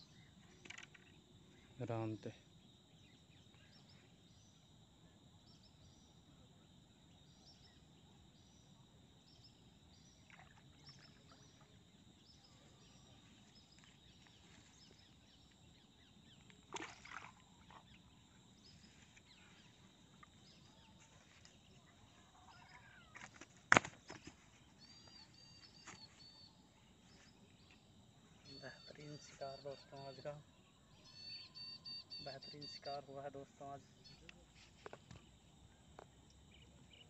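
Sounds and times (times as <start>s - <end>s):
faint high chirp: 24.1s - 35.0s.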